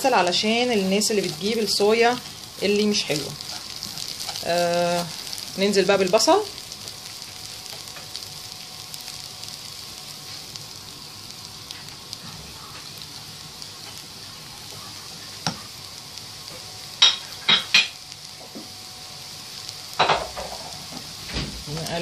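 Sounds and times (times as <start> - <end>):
rice sizzling in a pan: 0.0 - 22.0
spatula scraping a pan: 0.3 - 5.4.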